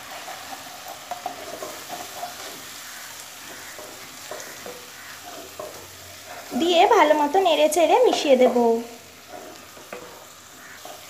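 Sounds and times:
paste sizzling in oil: 0.0 - 11.0
spatula scraping pan: 0.0 - 11.0
spatula clicking on pan: 0.2 - 5.9.

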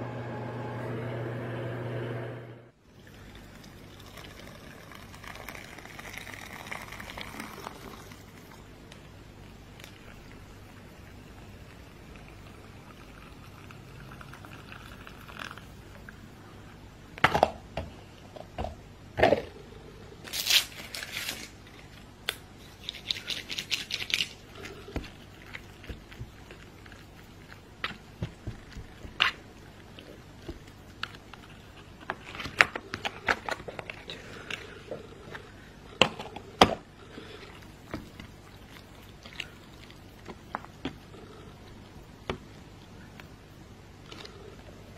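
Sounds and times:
hot water pouring into cup: 2.9 - 8.7, 9.8 - 16.3.

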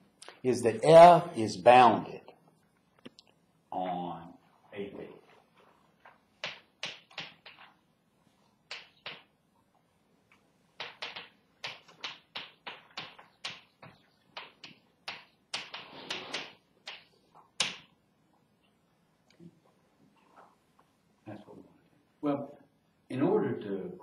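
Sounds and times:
chalk tapping and scratching on blackboard: 6.4 - 7.8, 8.7 - 9.3, 10.8 - 17.9.

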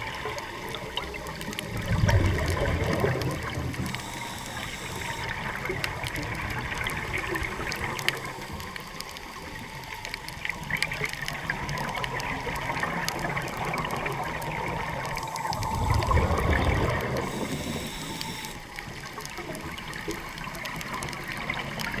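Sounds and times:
small sharp clicks and crackles: 0.0 - 22.0
exhaled breath bubbles: 1.7 - 8.9, 12.6 - 18.6
underwater hiss: 3.4 - 5.7, 14.8 - 19.0.

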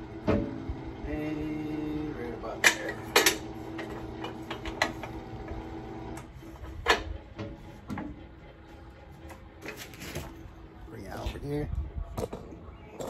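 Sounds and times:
steady mechanical hum: 0.0 - 12.9
metal clanks at smoker: 2.5 - 5.2.

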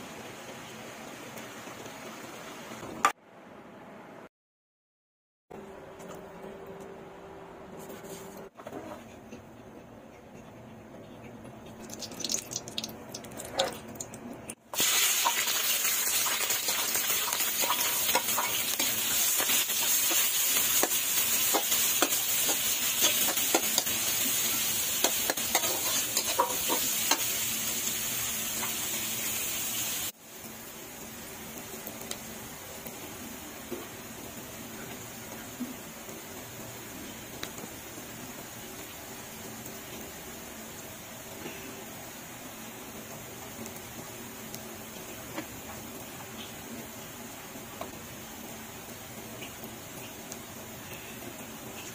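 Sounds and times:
onions sizzling in a pan: 14.7 - 51.9.

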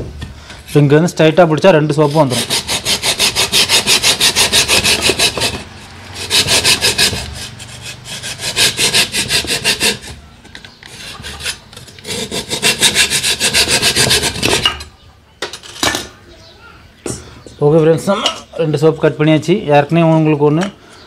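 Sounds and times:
hand saw cutting stone: 1.8 - 10.2, 10.9 - 14.7.

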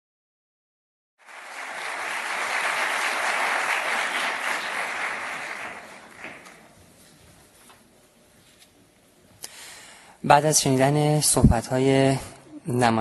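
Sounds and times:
audience applauding: 1.2 - 6.8.

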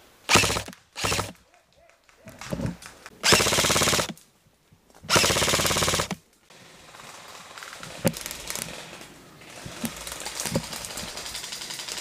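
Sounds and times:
airsoft rifle full-auto bursts: 0.3 - 1.4, 3.2 - 4.2, 5.1 - 6.2.

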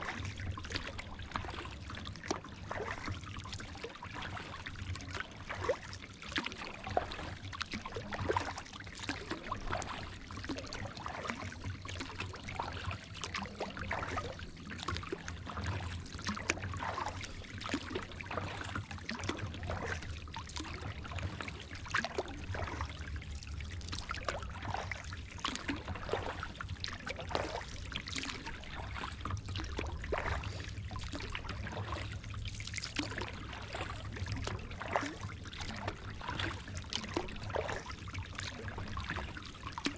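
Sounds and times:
paddle splashing water: 0.0 - 39.9
steady low rumble: 9.4 - 39.6.

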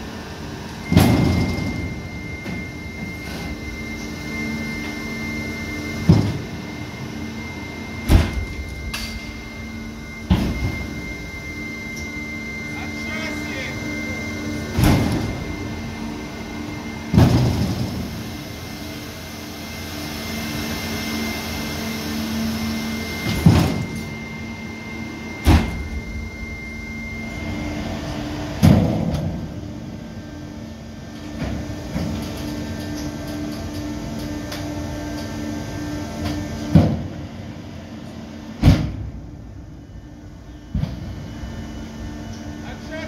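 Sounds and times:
mechanical hum: 0.0 - 43.0
thin high whine: 0.8 - 30.5.

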